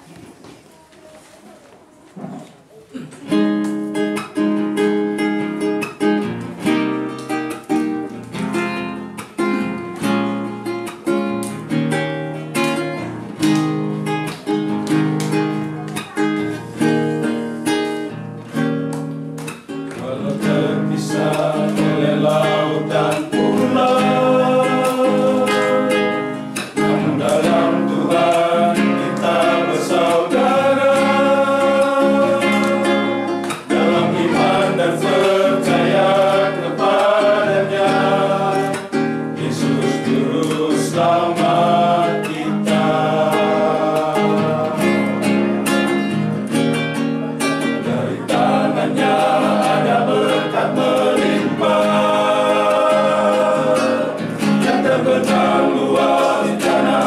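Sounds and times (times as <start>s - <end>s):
acoustic guitar strumming: 3.2s - 57.0s
men singing: 19.9s - 45.8s, 47.8s - 57.0s.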